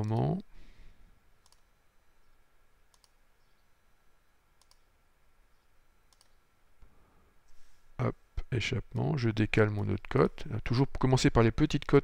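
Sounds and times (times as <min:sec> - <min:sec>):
computer mouse clicks: 0:01.4 - 0:01.7, 0:02.9 - 0:03.2, 0:04.6 - 0:04.9, 0:06.1 - 0:06.4.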